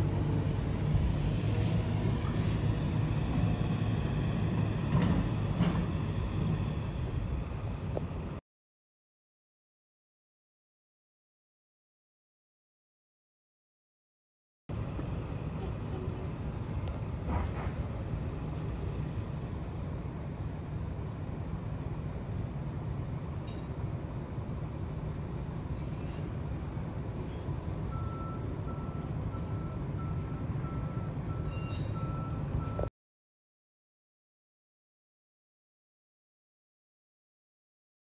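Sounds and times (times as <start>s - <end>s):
diesel truck engine rumbling: 0.0s - 8.4s
reversing alarm beeping: 27.9s - 32.9s.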